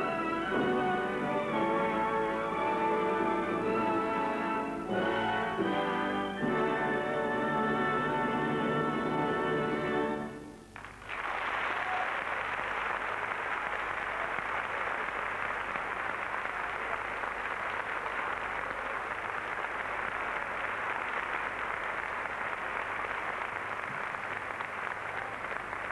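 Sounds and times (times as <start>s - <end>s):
orchestral chord: 0.0s - 10.6s
audience applauding: 10.6s - 25.9s.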